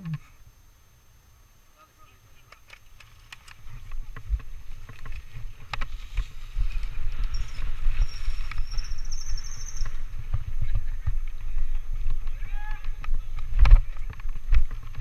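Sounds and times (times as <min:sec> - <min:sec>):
bike clicks and rattles: 0:02.4 - 0:15.0
faint high squeal: 0:07.3 - 0:10.0.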